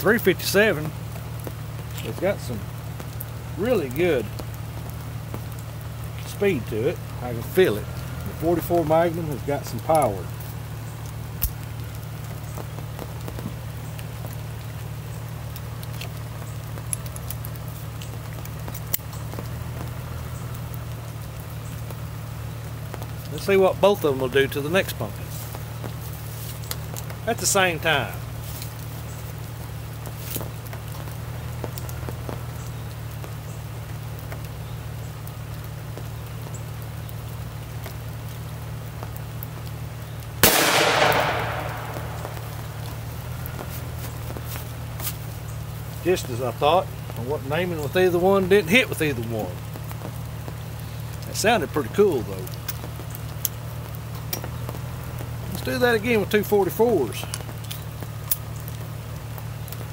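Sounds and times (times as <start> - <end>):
steady low hum: 0.0 - 54.2
revolver gunshot blast: 40.4 - 42.9.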